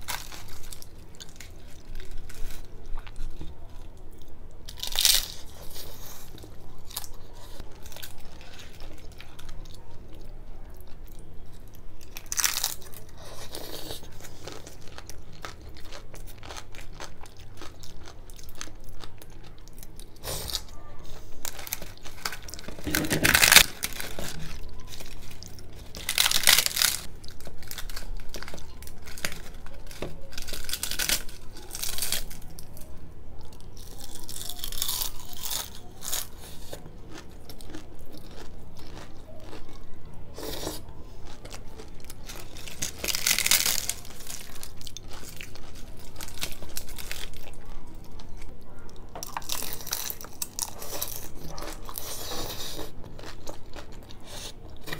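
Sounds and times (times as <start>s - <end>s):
loud crunches of crisp bread: 0.0s - 3.4s, 4.7s - 9.8s, 10.9s - 32.9s, 33.6s - 39.8s, 40.4s - 48.5s, 49.2s - 54.9s
wet chewing: 33.5s - 54.9s.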